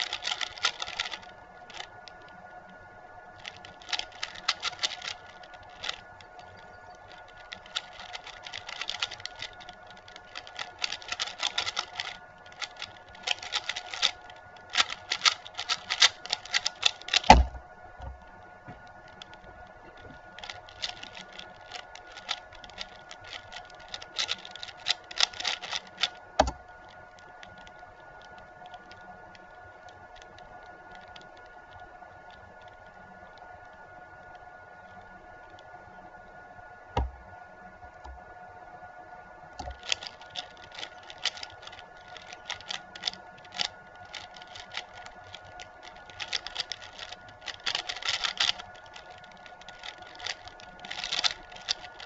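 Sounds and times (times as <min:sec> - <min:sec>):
puzzle cube layers clicking: 0:00.0 - 0:02.2, 0:03.4 - 0:17.5, 0:20.4 - 0:26.6, 0:39.6 - 0:52.0
faint steady hum: 0:00.0 - 0:52.0
cube set down thump: 0:17.2 - 0:18.8, 0:26.4 - 0:26.6, 0:37.0 - 0:37.2.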